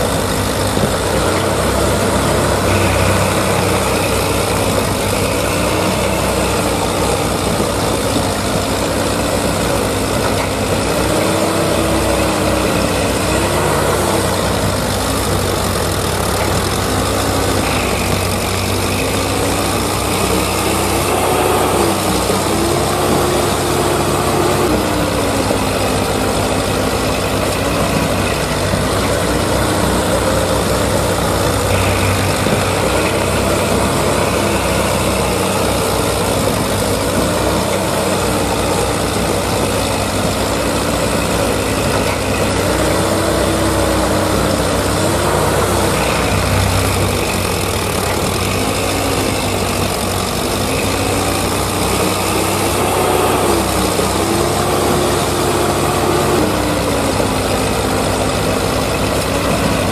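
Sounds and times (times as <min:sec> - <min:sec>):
tractor engine running: 0:00.0 - 0:59.9.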